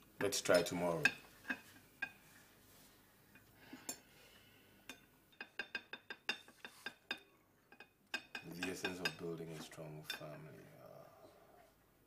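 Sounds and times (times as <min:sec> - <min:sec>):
cutlery clinking against dishes: 0:04.9 - 0:10.4.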